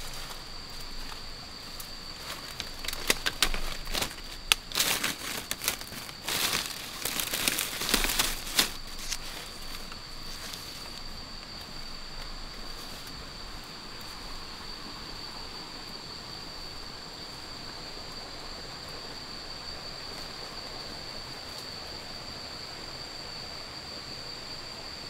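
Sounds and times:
dry leaves and twigs crackling: 0.0s - 14.2s
high insect trill: 0.0s - 25.0s.

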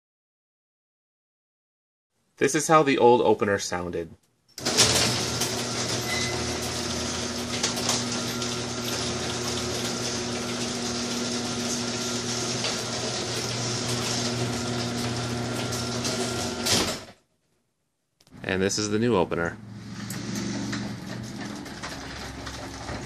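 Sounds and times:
garage door opener motor hum: 4.6s - 17.2s, 19.5s - 23.0s
garage door rattling: 4.6s - 17.2s, 19.8s - 23.0s.

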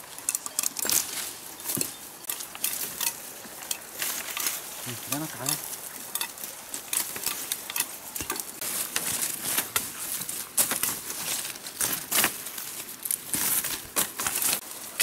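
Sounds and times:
sticks snapping: 0.0s - 4.6s
leaves and twigs rustling: 0.0s - 15.0s.

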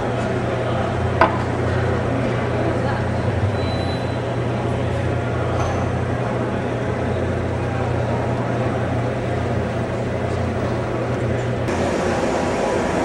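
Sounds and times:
faint indistinct voices: 0.0s - 12.2s.

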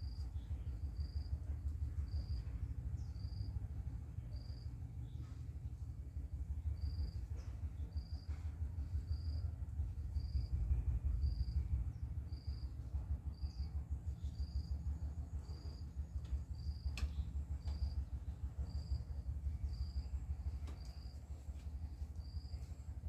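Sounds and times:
insect chirping: 0.0s - 1.3s, 10.2s - 10.5s, 11.2s - 11.6s, 12.3s - 16.9s, 18.6s - 20.1s, 22.2s - 22.7s
low rumble: 0.0s - 23.0s.

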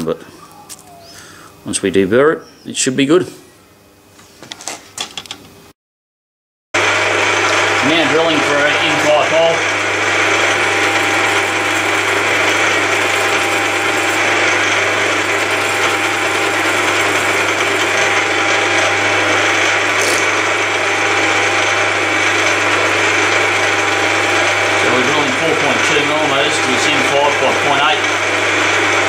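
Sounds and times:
milling machine drilling steel: 6.8s - 29.0s.

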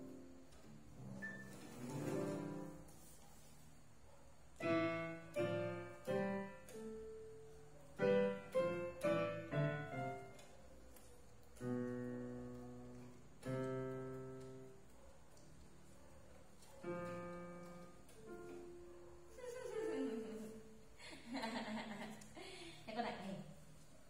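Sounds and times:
electronic keyboard piano chords: 0.0s - 3.2s, 4.6s - 16.0s, 16.6s - 21.0s.

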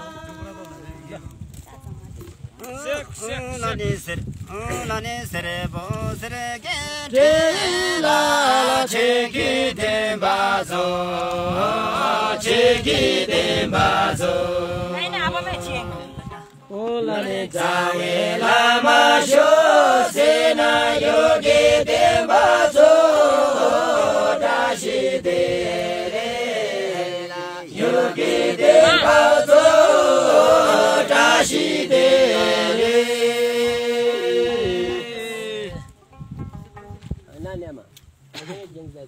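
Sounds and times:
group chant-like singing: 0.0s - 1.3s, 6.8s - 16.3s, 17.0s - 35.8s.

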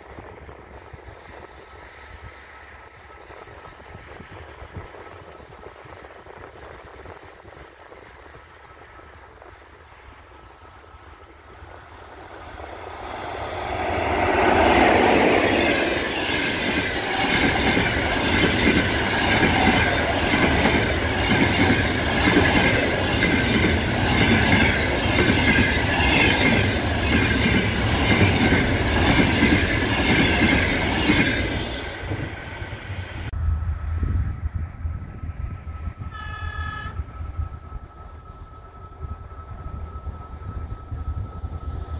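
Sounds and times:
electric locomotive passing: 0.0s - 41.9s
train wheels clattering on rails: 12.1s - 33.0s
low rumble: 33.2s - 36.2s.

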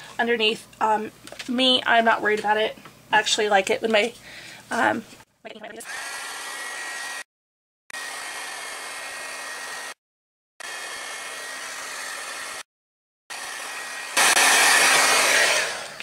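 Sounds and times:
heat gun blowing: 5.8s - 7.3s, 7.9s - 10.0s, 10.6s - 12.7s, 13.3s - 16.0s.

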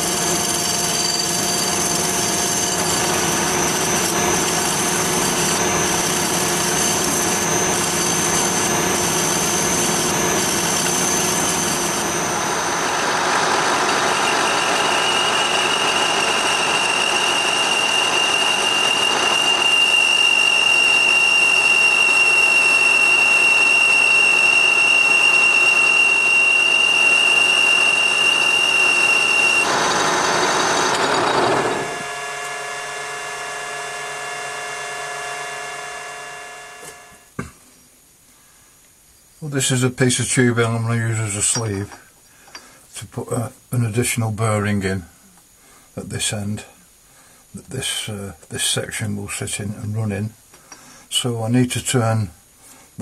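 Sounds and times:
lathe cutting tool cutting: 0.0s - 37.2s
metal lathe running: 0.0s - 37.2s
high-pitched whine: 0.0s - 37.5s.

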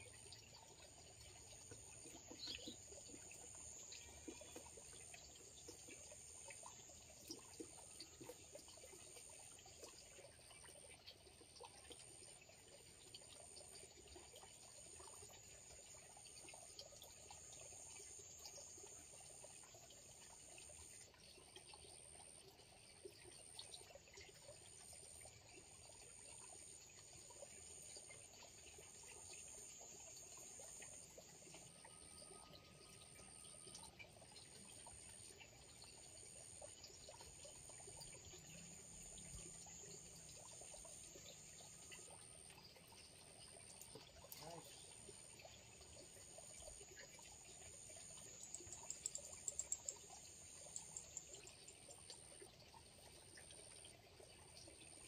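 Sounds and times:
water trickling: 0.0s - 55.0s.

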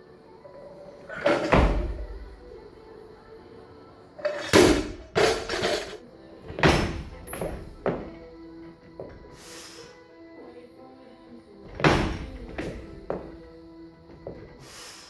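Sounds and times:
background music: 0.0s - 15.0s
barbell thudding on platform: 1.2s - 2.3s, 4.4s - 5.8s, 6.5s - 8.2s, 11.7s - 13.4s
feet stamping on platform: 6.5s - 8.3s, 11.7s - 13.5s.

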